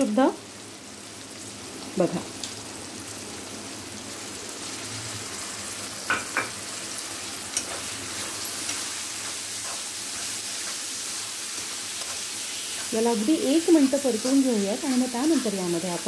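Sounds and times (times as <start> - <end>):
food sizzling in hot oil: 0.0 - 16.0
spoon scraping on pan: 7.5 - 13.0, 13.6 - 16.0
metal spoon stirring: 7.6 - 10.9.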